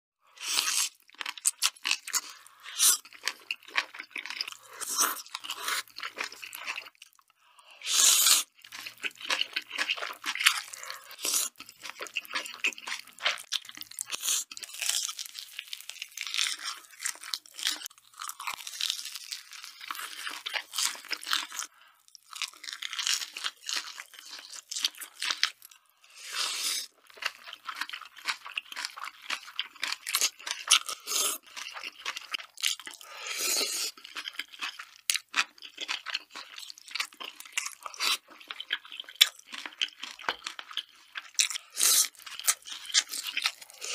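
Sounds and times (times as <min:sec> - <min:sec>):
wet chewing: 0:00.4 - 0:07.3, 0:07.9 - 0:25.6, 0:26.5 - 0:43.9
slurping noodles: 0:07.8 - 0:11.6, 0:26.2 - 0:27.0, 0:33.0 - 0:34.0.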